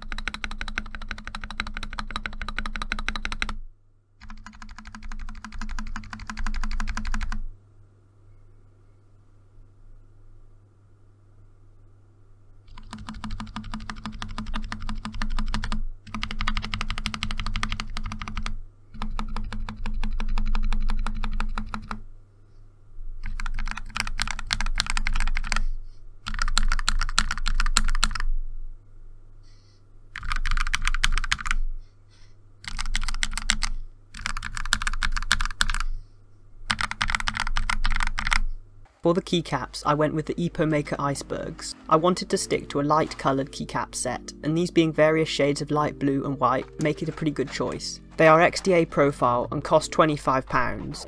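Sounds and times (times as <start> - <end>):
mechanical keyboard typing: 0.0 - 3.6, 4.2 - 7.4, 12.7 - 22.0, 23.2 - 28.3, 30.2 - 31.6, 32.6 - 35.9, 36.7 - 38.5.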